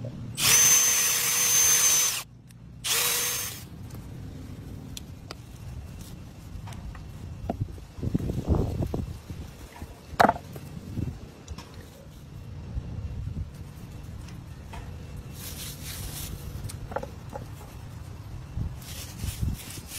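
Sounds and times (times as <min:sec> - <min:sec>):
power drill drilling into bone: 0:00.4 - 0:02.2, 0:02.8 - 0:03.6.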